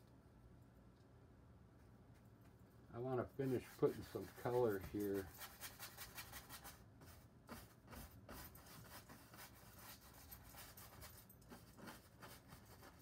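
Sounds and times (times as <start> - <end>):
brush rubbing on canvas: 3.0 - 13.0.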